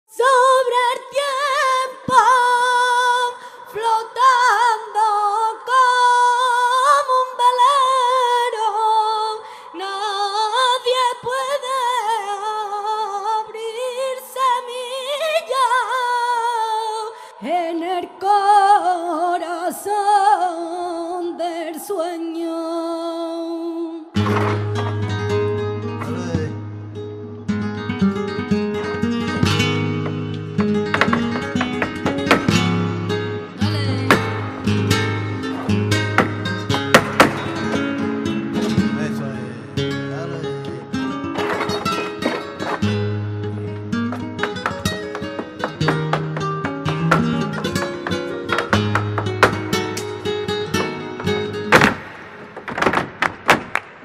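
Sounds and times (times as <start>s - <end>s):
woman singing unaccompanied: 0.1s - 24.2s, 33.6s - 34.8s.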